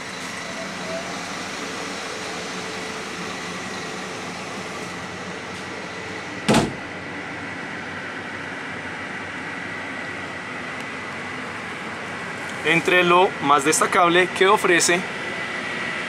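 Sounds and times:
coach cabin hum: 0.0s - 16.0s
loud thump: 6.5s - 6.8s.

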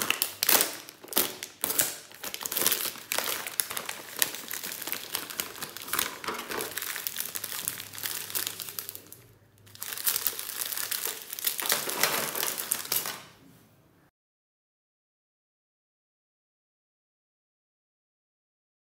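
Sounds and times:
plastic snack wrappers crinkling: 0.0s - 13.4s.

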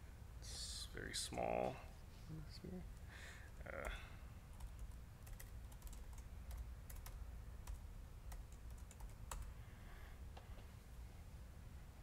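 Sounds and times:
low steady hum: 0.0s - 12.0s
laptop keyboard typing: 3.6s - 9.5s.

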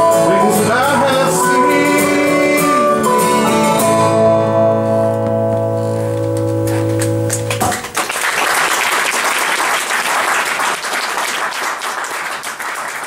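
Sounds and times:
guitar chord ringing: 0.0s - 7.6s
audience applauding: 6.2s - 13.0s.

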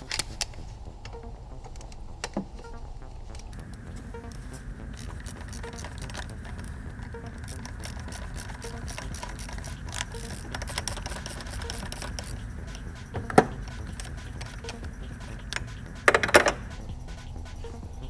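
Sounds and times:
ratchet wrench clicking: 5.0s - 17.2s.

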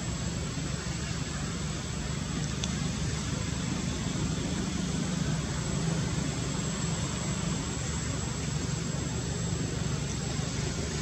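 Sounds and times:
faint tick: 2.4s - 2.8s.

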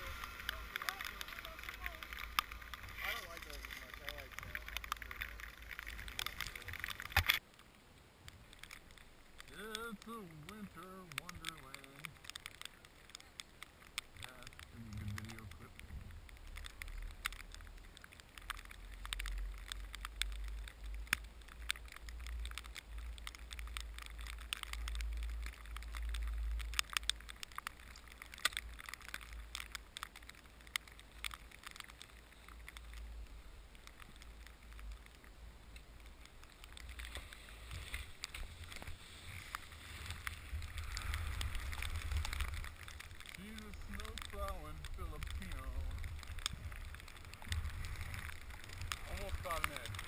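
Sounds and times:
skis scraping over wet snow: 0.0s - 7.4s, 14.2s - 16.1s, 36.1s - 50.0s
sharp crackles and clicks: 0.0s - 50.0s
wind rumble on microphone: 37.6s - 50.0s.

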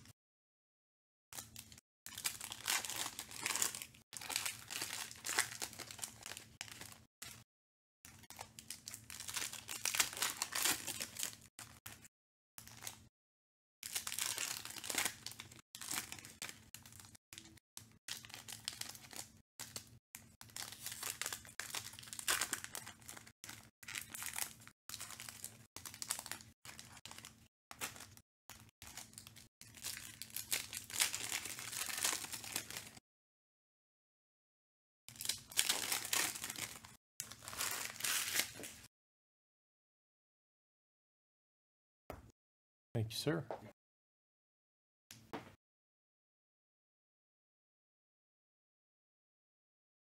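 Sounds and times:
foil packs ripping and crackling: 1.6s - 7.0s, 8.6s - 11.5s, 13.9s - 17.5s, 20.5s - 28.1s, 28.8s - 33.0s, 35.1s - 38.8s.

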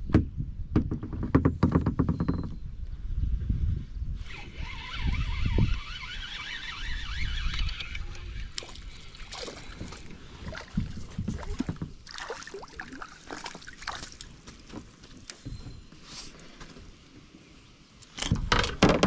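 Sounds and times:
wind rumble on microphone: 0.0s - 12.1s
knocks and clicks on kayak: 0.1s - 2.6s
water sloshing: 5.9s - 16.6s.

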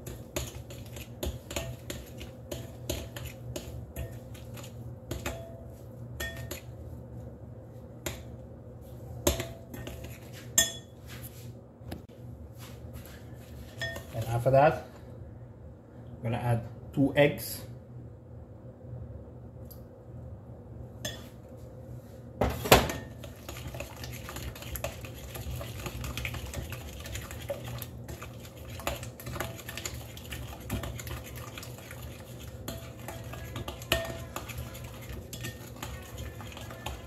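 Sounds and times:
fork clinking against glass bowl: 6.2s - 6.7s, 10.6s - 10.9s.

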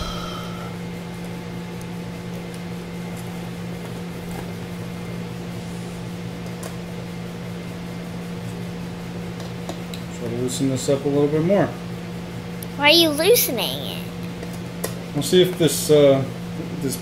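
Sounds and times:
steady low hum: 0.0s - 1.2s.

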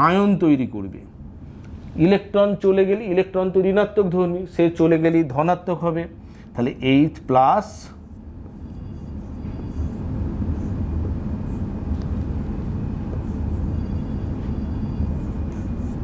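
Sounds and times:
steady low rumble: 5.9s - 16.0s
marker squeaking on whiteboard: 8.0s - 16.0s.

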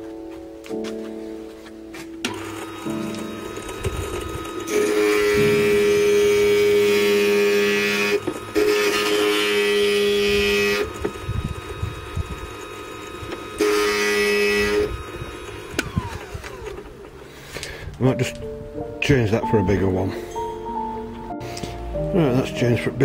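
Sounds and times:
grinder bit whining on glass: 2.3s - 17.3s.

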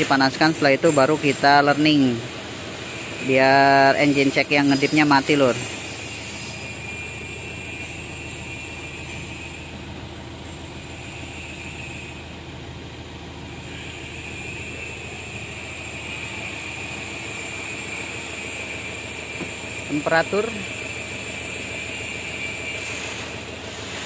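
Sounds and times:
diesel engine idling: 0.0s - 24.0s
faint high whine: 13.5s - 23.3s.

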